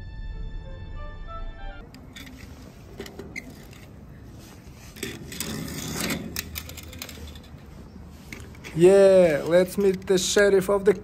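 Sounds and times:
toy cars clicking and rattling: 0:01.9 - 0:04.0, 0:04.8 - 0:11.0.

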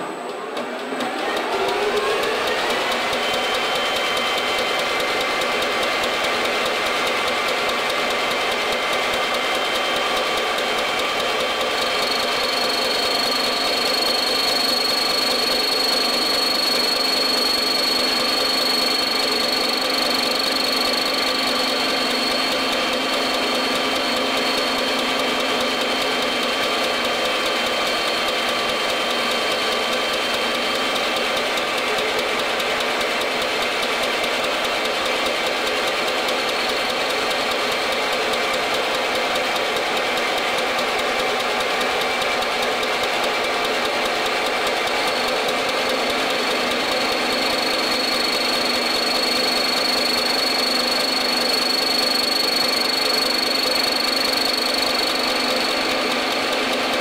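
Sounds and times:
milling machine running: 0:00.3 - 0:38.0, 0:40.8 - 0:57.0
high steady whine: 0:11.7 - 0:30.6, 0:45.0 - 0:57.0.

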